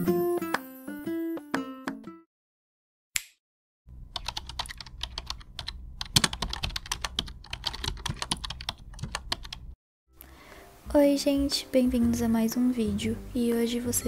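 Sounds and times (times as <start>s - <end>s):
computer keyboard typing: 4.1s - 9.7s.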